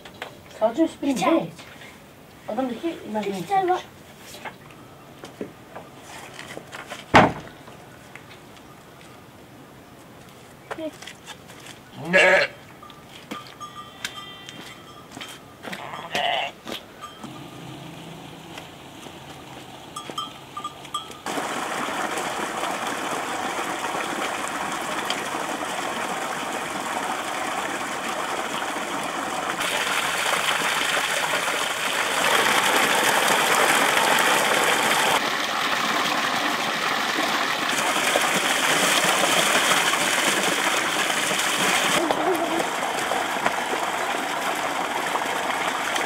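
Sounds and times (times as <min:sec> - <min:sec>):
water gushing onto stones: 0:21.2 - 0:46.0.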